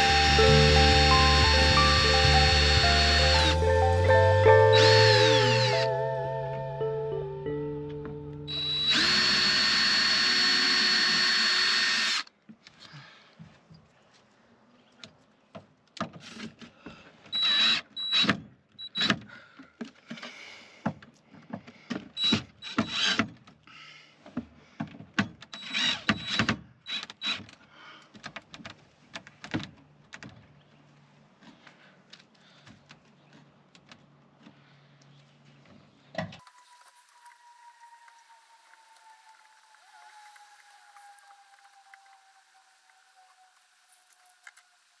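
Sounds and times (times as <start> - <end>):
electric drill whining: 0.0 - 5.9, 8.5 - 12.3.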